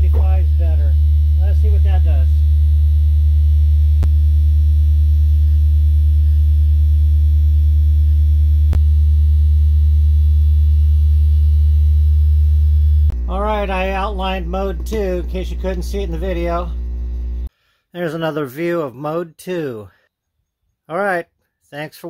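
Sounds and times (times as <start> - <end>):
low sine tone: 0.0 - 17.5.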